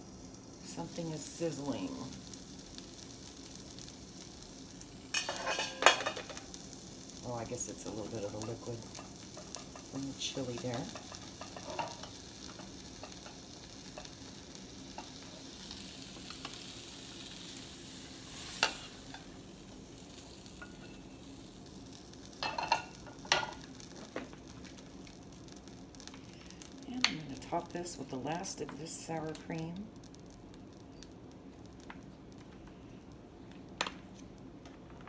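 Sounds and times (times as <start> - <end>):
liquid sizzling in a skillet: 0.0 - 34.6
wooden spatula in pan: 7.8 - 14.2.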